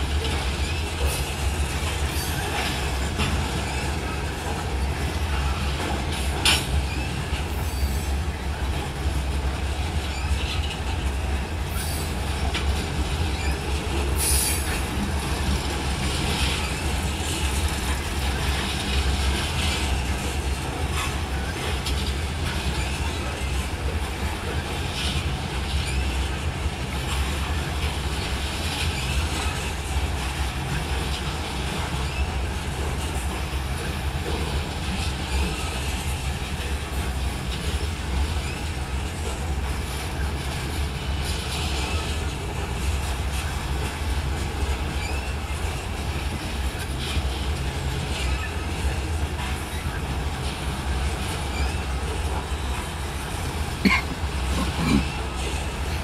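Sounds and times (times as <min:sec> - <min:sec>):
train wheels rumbling on rail: 0:00.0 - 0:56.0
wheel squeals: 0:13.2 - 0:15.5, 0:44.7 - 0:45.9, 0:48.1 - 0:53.4.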